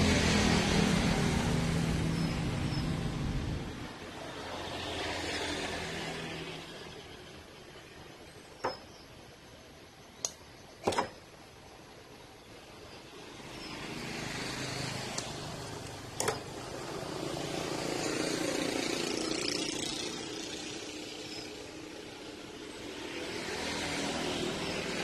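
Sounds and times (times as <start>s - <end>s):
traffic road noise: 0.0s - 25.0s
sharp click: 10.2s - 11.2s.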